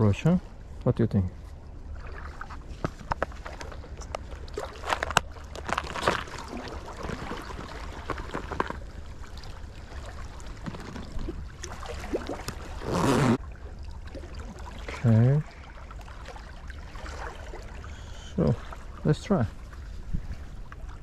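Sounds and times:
water washing against rocks: 2.1s - 13.4s
wind on microphone: 19.9s - 21.0s.

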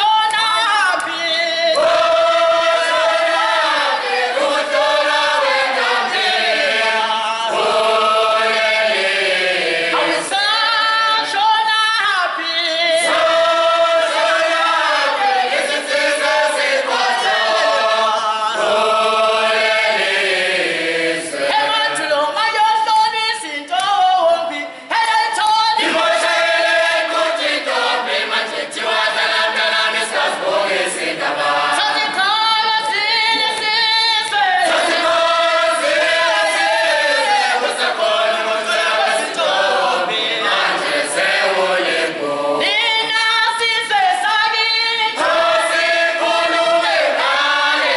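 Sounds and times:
group singing a cappella: 0.0s - 47.9s.

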